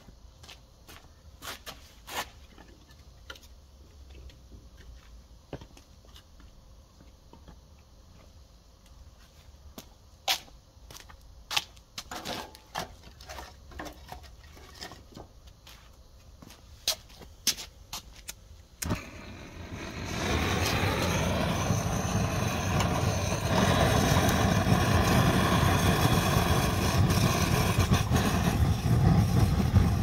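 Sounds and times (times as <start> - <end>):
slipper footsteps on concrete: 4.7 - 12.1, 15.4 - 18.4.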